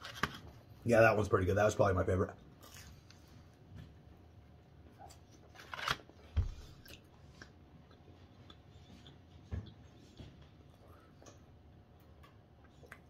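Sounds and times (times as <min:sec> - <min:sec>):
man chewing: 0:02.5 - 0:03.8, 0:04.6 - 0:13.0.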